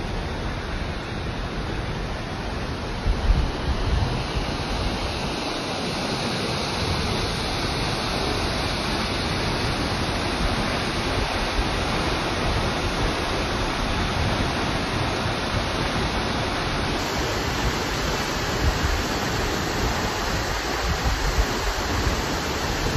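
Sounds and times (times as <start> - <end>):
waterfall pouring onto rocks: 17.0 - 22.9.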